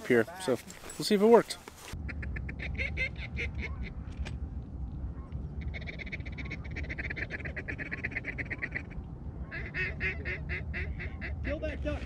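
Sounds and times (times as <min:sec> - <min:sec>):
waterfowl calling: 0:02.0 - 0:04.3, 0:05.0 - 0:11.6.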